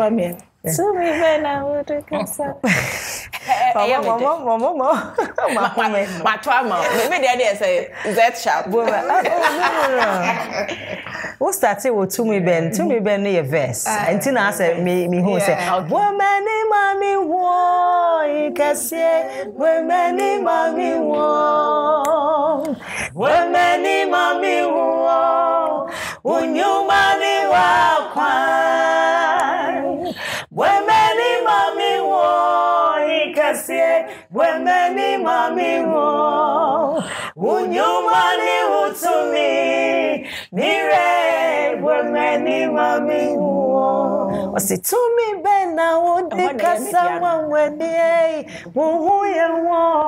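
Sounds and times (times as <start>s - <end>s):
women singing unaccompanied: 13.9s - 50.0s.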